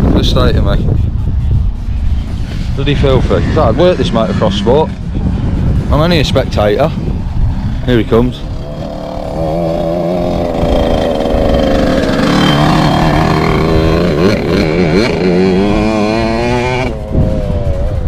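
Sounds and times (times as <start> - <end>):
motocross bike engine revving: 2.2 - 5.2, 8.4 - 18.0.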